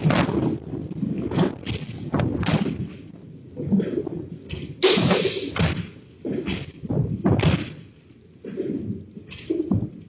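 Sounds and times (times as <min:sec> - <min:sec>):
knocks and thuds: 0:04.5 - 0:07.9
loud bang: 0:04.8 - 0:05.9.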